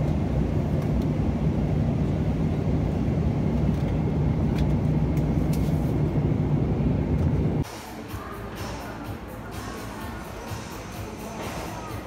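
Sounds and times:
engines and rushing air rumble: 0.0s - 8.0s
constant low hum: 0.0s - 12.0s.

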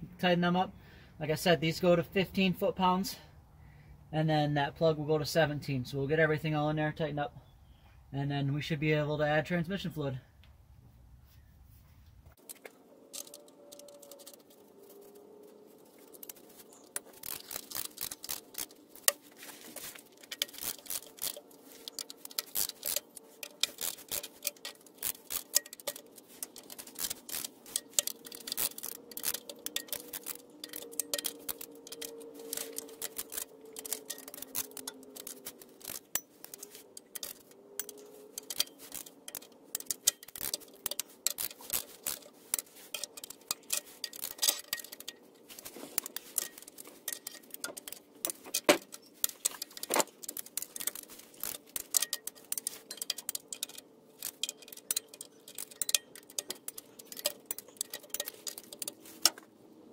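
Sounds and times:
socket ratchet clicking: 20.0s - 59.4s.

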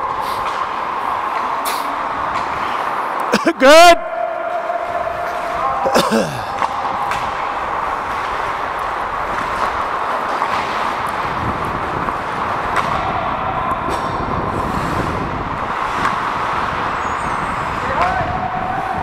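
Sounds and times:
wind noise on microphone: 4.8s - 19.0s
ice skates scraping on a rink: 6.5s - 13.1s, 13.9s - 18.2s.

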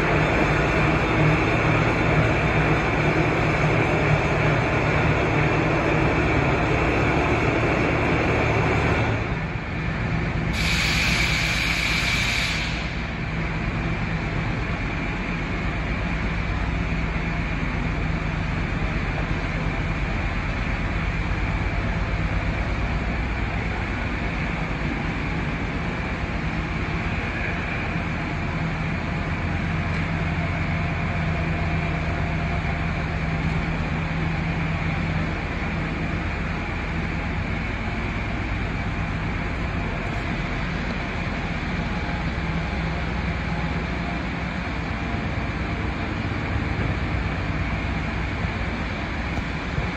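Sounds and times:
surface grinder rumble and hum: 0.0s - 49.9s
brief hiss: 10.6s - 13.0s.

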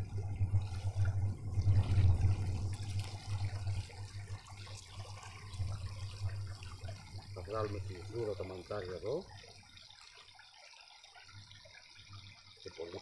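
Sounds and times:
low uneven rumble: 0.0s - 10.0s.

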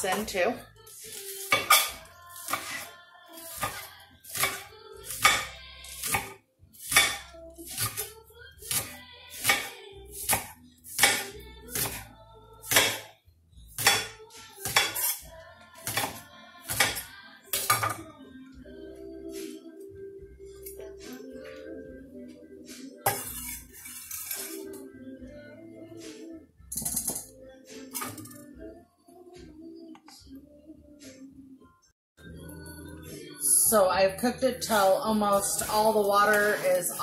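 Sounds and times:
knife chopping on stone board: 1.5s - 8.1s, 8.7s - 12.0s, 12.7s - 13.1s.

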